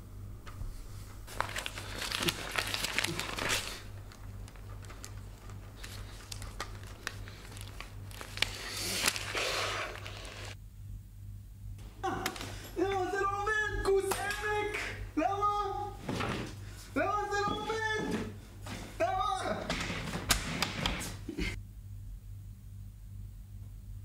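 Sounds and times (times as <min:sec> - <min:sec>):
low steady hum: 0:00.0 - 0:09.4, 0:10.1 - 0:20.3, 0:21.1 - 0:24.0
paper crumpling: 0:01.2 - 0:10.6.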